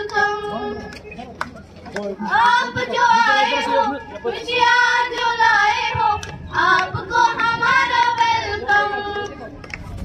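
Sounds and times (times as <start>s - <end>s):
girls singing: 0.0s - 0.8s, 2.3s - 9.3s.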